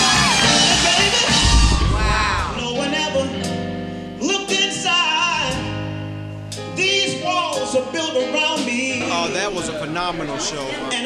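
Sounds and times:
keyboard accompaniment: 0.0 - 11.0
man singing: 0.6 - 3.6, 4.2 - 5.8, 6.7 - 11.0
band hit: 1.4 - 2.8.

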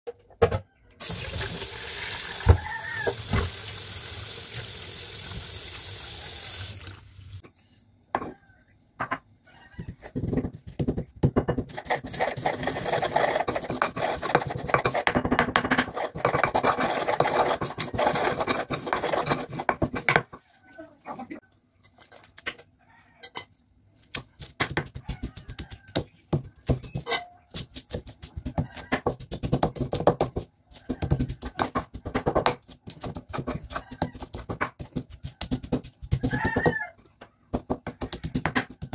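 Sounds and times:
tap water running into sink: 1.0 - 7.3
stone pestle grinding seeds: 9.9 - 20.2, 24.4 - 36.9.

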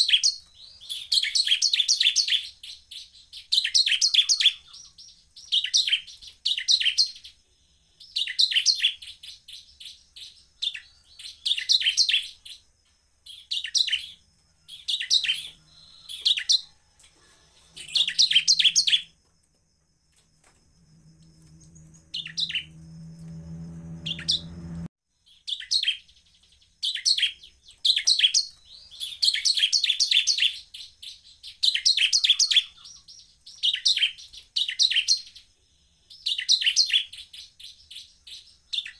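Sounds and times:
bird chirping in rapid bursts: 0.0 - 19.2, 21.4 - 22.8, 24.0 - 38.9
low hum: 20.7 - 24.9.

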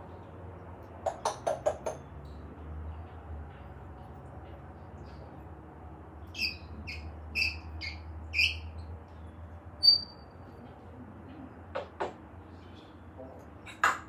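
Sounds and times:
parrot calling: 6.4 - 8.8.

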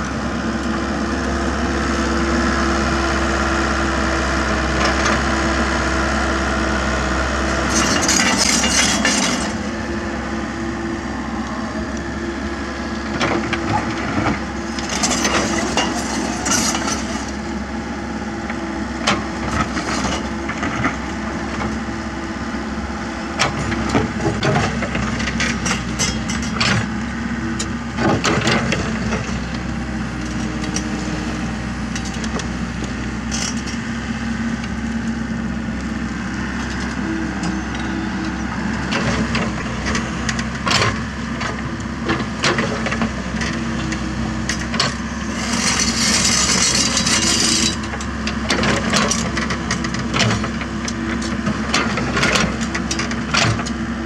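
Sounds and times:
excavator diesel engine running: 0.0 - 54.0
bucket scraping soil and stones: 45.3 - 47.8.

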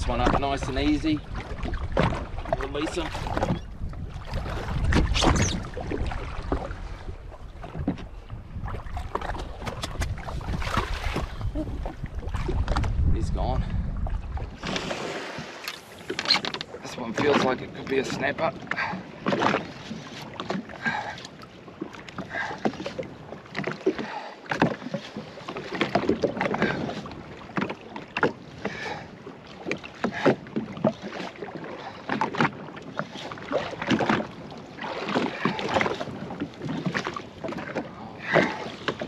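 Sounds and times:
wind buffeting microphone: 0.0 - 16.2
waves slapping against hull: 0.0 - 39.0.

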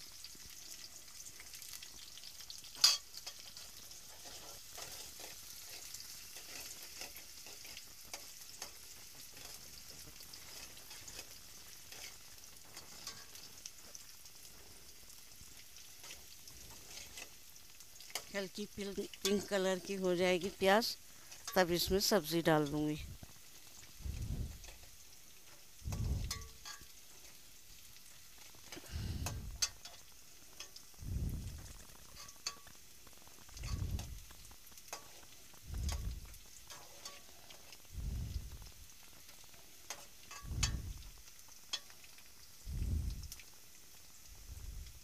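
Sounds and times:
onions sizzling in oil: 0.0 - 45.0
spoon scraping pot: 25.5 - 27.4, 33.5 - 37.9.

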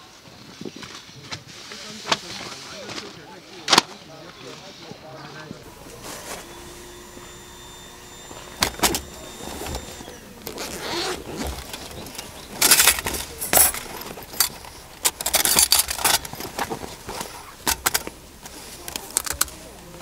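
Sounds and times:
small hard objects clattering: 5.7 - 20.0.

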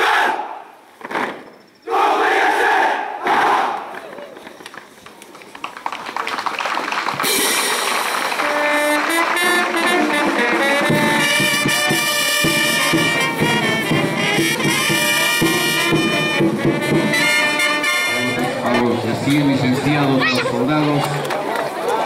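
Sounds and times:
brass band music: 7.2 - 20.4.

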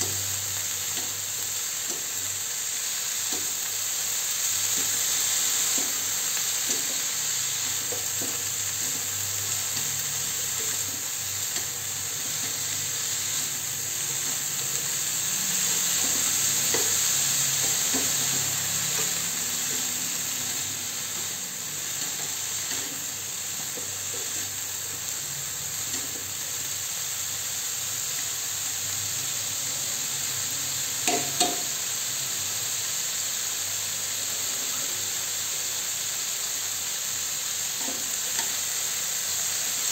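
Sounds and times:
food sizzling in a frying pan: 0.0 - 39.9.

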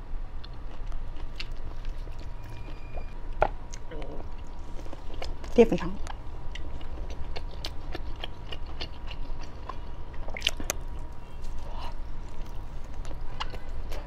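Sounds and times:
person biting and chewing: 0.4 - 2.8, 3.4 - 14.0
wet mouth clicks and smacks: 10.2 - 11.1.

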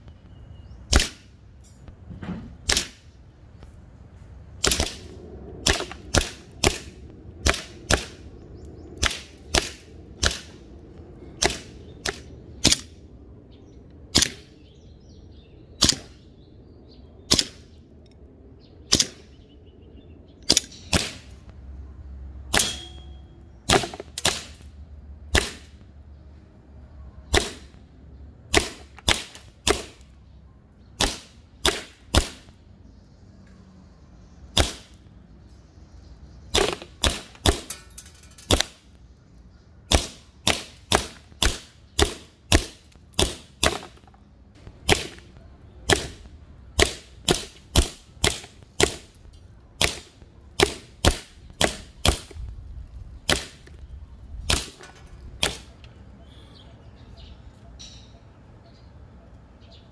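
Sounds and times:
airsoft pistol shots: 0.9 - 1.3, 2.6 - 3.0, 4.6 - 8.2, 9.0 - 10.6, 14.1 - 14.5, 15.8 - 16.2, 17.3 - 17.6, 18.9 - 19.3, 20.5 - 21.3, 23.7 - 24.6, 25.3 - 25.8, 27.3 - 27.8, 28.5 - 30.0, 31.0 - 32.5, 34.6 - 35.0, 36.5 - 37.7, 39.9 - 44.0, 44.8 - 45.3, 45.9 - 49.2, 49.8 - 52.4, 54.5 - 54.8, 55.4 - 55.7.

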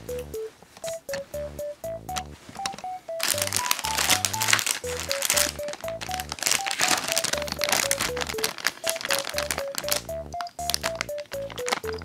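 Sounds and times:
plucked melody background music: 0.0 - 12.0
plastic packaging crinkling: 2.6 - 12.0.

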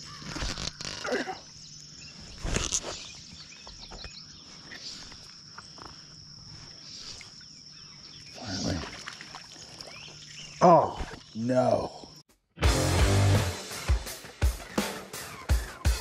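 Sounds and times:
insects droning: 0.0 - 12.3.

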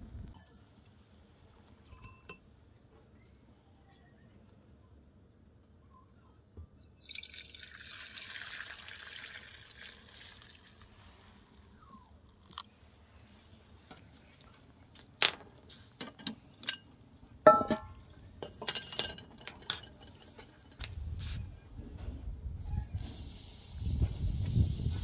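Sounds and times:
dishes and utensils clinking: 17.5 - 20.9.

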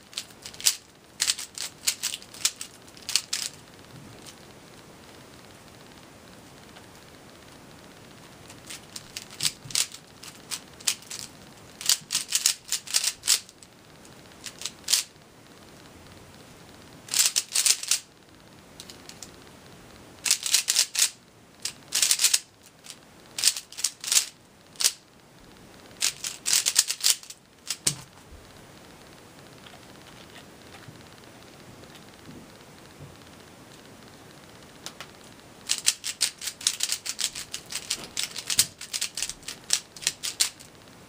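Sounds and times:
plastic puzzle cube clicking: 0.1 - 3.6, 8.5 - 13.6, 14.4 - 15.1, 17.1 - 18.1, 20.2 - 25.0, 26.0 - 28.0, 35.7 - 40.7.

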